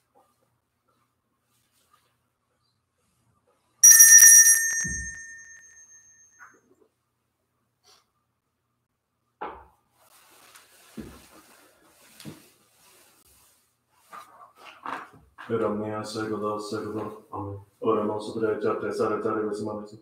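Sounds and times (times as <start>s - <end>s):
small bells jingling: 3.8s - 6.3s.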